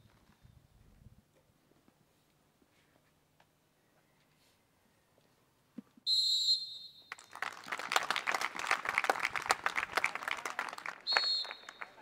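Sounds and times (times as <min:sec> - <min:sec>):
referee's whistle blast: 0:06.1 - 0:07.2, 0:11.1 - 0:12.0
crowd clapping: 0:07.1 - 0:12.0.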